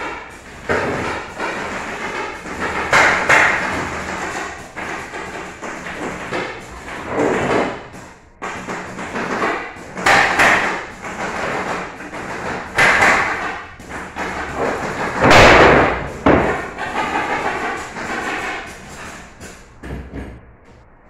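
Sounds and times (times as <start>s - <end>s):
nail gun firing: 8.4s - 18.6s
wooden frame knocking: 14.0s - 17.6s.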